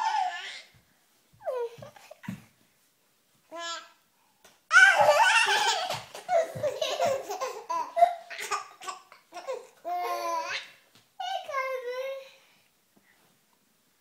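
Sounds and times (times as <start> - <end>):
baby laughing: 4.7 - 10.7.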